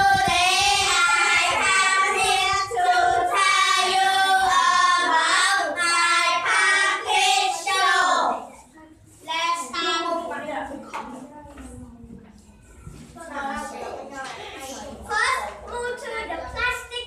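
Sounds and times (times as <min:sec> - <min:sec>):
children singing in unison: 0:00.0 - 0:08.5.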